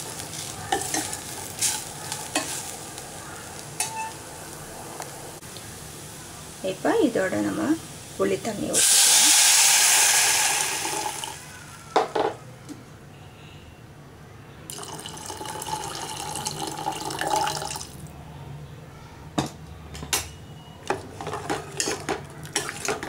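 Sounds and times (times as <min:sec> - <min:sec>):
liquid pouring into a pot: 0:08.8 - 0:11.4, 0:14.7 - 0:18.0.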